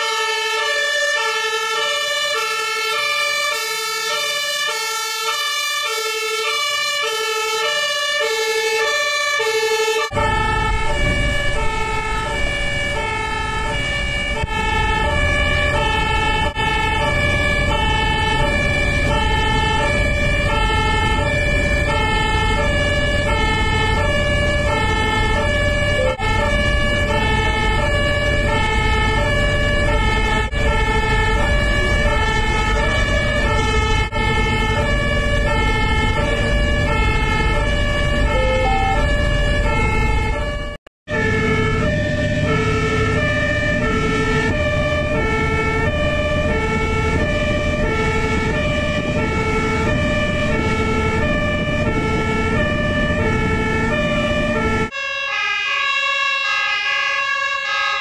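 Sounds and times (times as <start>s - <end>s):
two-tone siren: 0.0s - 58.0s
vehicle engine rumble: 10.0s - 54.9s.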